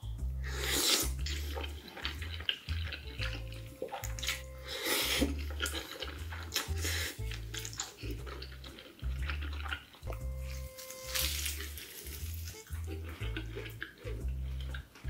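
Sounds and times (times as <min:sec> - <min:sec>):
music with steady bass beat: 0:00.0 - 0:15.0
person slurping and chewing food: 0:00.3 - 0:15.0.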